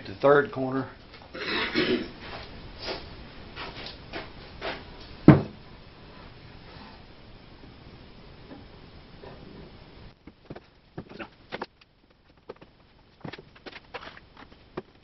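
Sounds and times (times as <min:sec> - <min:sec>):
rustling: 0:09.3 - 0:15.0.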